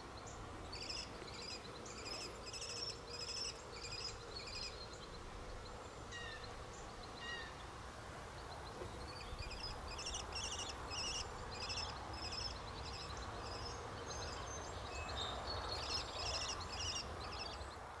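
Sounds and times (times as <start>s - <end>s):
birds chattering: 8.4s - 17.8s.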